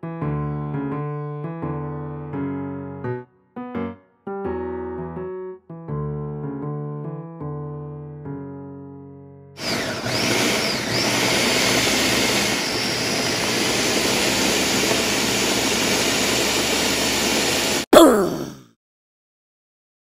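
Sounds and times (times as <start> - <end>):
blender running at high speed: 9.6 - 17.8.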